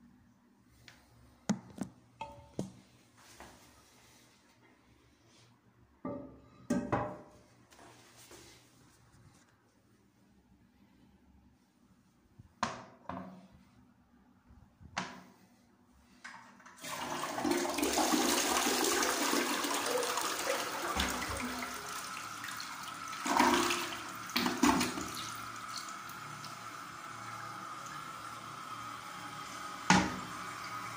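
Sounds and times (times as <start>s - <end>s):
toilet flushing: 16.4s - 30.9s
toilet refilling: 16.4s - 30.9s.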